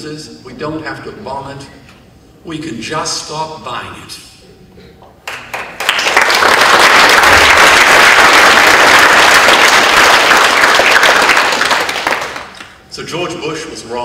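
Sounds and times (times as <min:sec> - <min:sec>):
audience applauding: 0:05.2 - 0:12.7.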